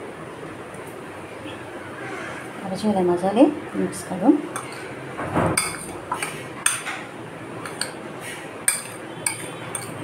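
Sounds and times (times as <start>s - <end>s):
spoon clinking against bowl: 5.6s - 7.0s, 7.6s - 8.0s, 8.6s - 10.0s
spoon stirring pickle squelching: 7.6s - 8.0s, 8.6s - 10.0s.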